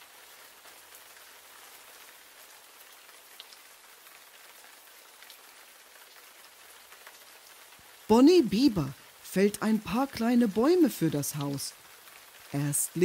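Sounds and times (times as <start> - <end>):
steady rain hiss: 0.0 - 13.0.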